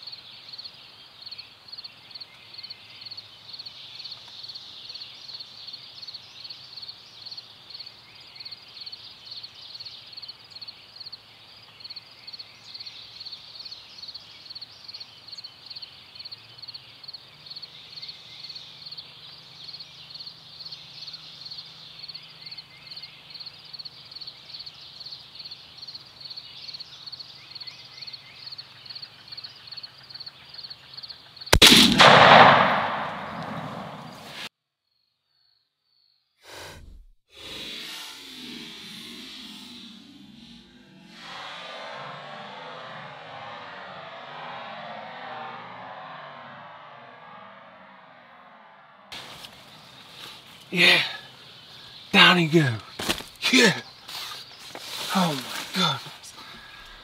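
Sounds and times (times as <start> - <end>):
faint calls: 44.5 - 57.0.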